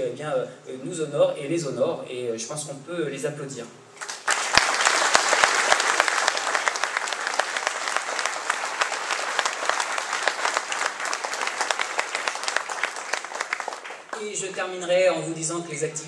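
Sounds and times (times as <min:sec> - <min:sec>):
large audience applauding: 0:04.0 - 0:14.7.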